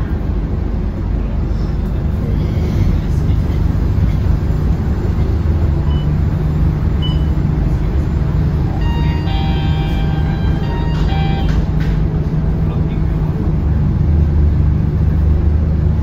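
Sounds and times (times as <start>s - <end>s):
bus diesel engine humming: 0.0s - 16.0s
high steady tones: 8.6s - 11.8s.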